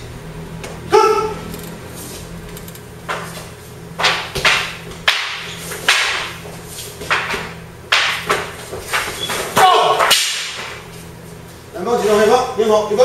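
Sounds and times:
wooden spears clacking: 4.0 - 10.8.

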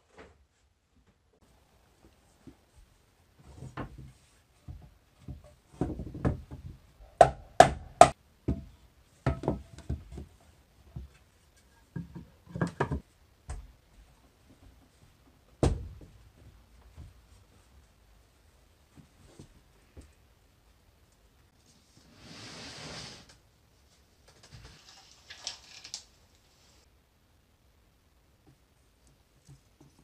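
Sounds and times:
tools knocking on wood: 5.3 - 10.3.

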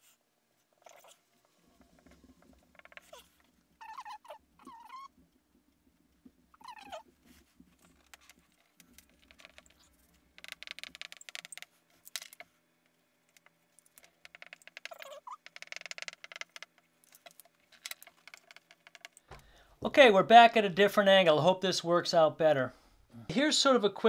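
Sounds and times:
marker squeaking on whiteboard: 2.7 - 5.2, 6.6 - 11.8, 14.0 - 19.2.

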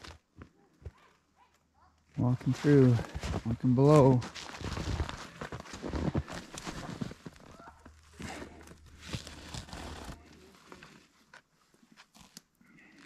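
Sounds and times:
footsteps in snow: 2.2 - 11.0.

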